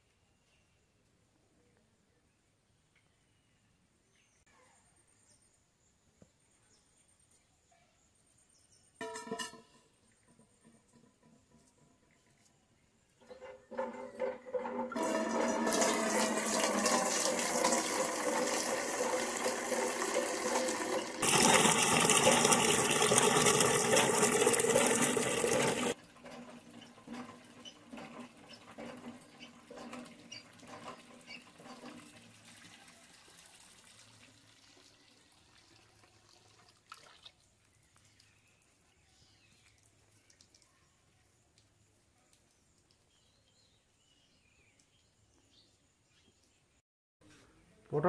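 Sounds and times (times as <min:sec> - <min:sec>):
water splashes and knocks: 0:13.2 - 0:32.8
water pouring into metal pail: 0:13.2 - 0:37.8.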